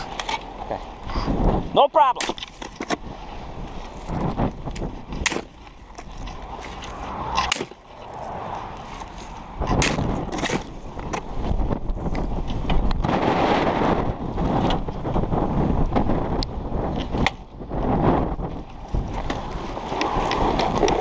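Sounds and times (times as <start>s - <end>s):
wind rumble on microphone: 0.0s - 21.0s.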